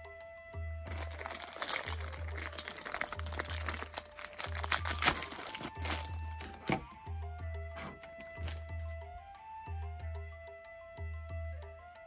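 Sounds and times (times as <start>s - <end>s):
plastic bag crinkling: 0.9s - 7.0s, 7.8s - 8.7s.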